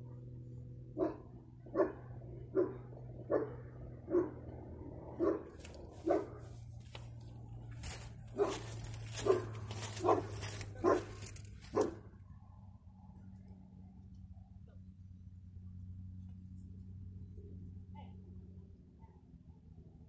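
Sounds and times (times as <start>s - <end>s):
dog barking: 1.0s - 4.5s, 5.1s - 6.5s, 8.3s - 12.1s.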